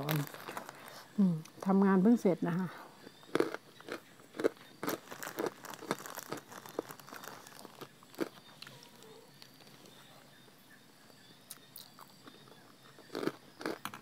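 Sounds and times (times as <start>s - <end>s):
person crunching crackling: 0.0s - 1.8s, 3.1s - 9.9s, 11.5s - 14.0s.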